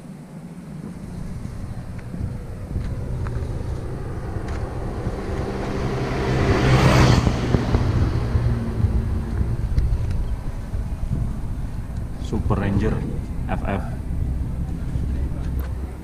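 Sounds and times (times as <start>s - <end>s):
low engine hum: 0.0s - 16.0s
vehicle passing by: 0.6s - 16.0s.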